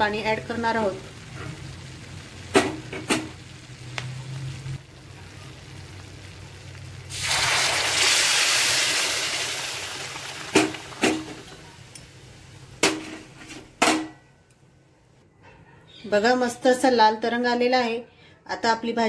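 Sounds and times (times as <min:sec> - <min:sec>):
loud sizzle: 0:00.0 - 0:14.6
water poured into hot oil: 0:00.4 - 0:11.6.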